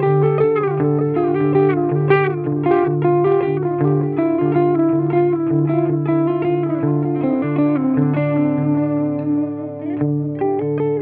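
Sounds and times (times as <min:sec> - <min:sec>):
electric guitar picked notes: 0:00.0 - 0:11.0.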